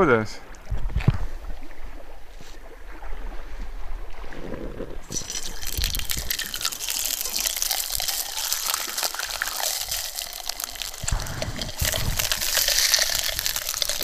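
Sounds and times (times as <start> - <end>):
fish sizzling in a frying pan: 5.1 - 14.0.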